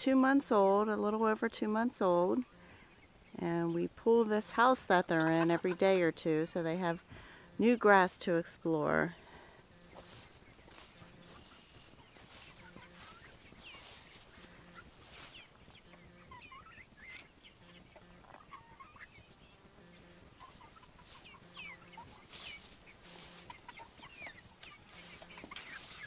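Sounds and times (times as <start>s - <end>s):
chickens peeping and clucking: 0.0s - 26.0s
rustling: 9.9s - 16.3s, 19.8s - 26.0s.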